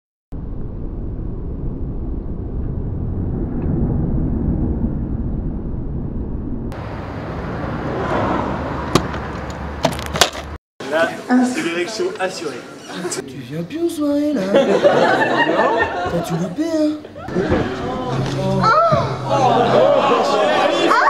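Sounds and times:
low rumble of traffic: 0:00.4 - 0:10.6.

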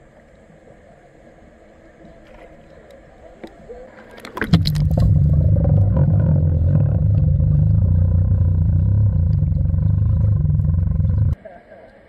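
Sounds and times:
muffled underwater rumble: 0:02.1 - 0:11.4.

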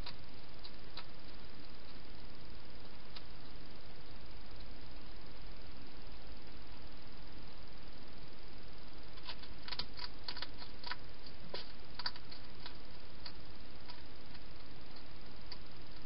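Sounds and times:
steady hiss: 0:00.0 - 0:16.0
hedgehog crunching food: 0:09.2 - 0:15.6.

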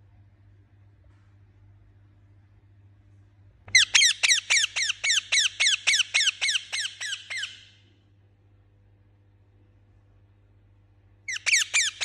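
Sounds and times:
parakeet harsh chirping calls: 0:03.7 - 0:07.8, 0:11.3 - 0:12.0.

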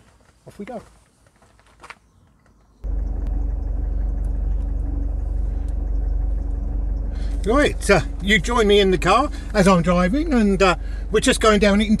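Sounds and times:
car engine rumbling: 0:02.8 - 0:12.0.

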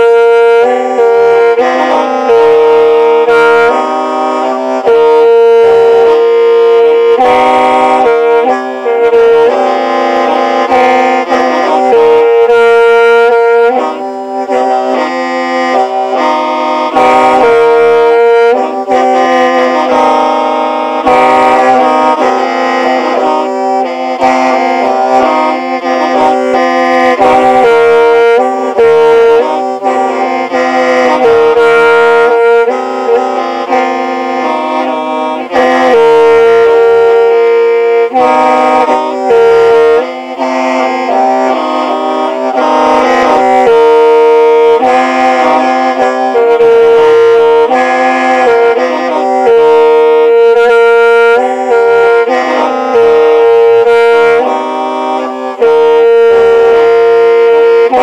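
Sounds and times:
bamboo mouth organ melody: 0:00.0 - 0:58.0.

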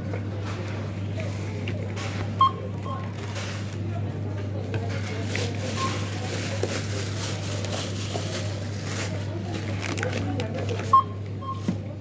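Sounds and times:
shop counter noise: 0:00.0 - 0:12.0
barcode scanner beep: 0:02.4 - 0:03.1, 0:10.9 - 0:11.7.

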